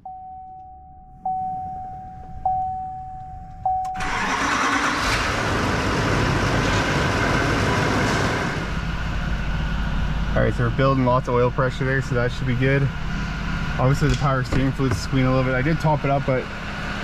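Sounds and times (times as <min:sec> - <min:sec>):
truck warning chime: 0:00.0 - 0:04.9
diesel engine starting and idling: 0:03.3 - 0:17.0.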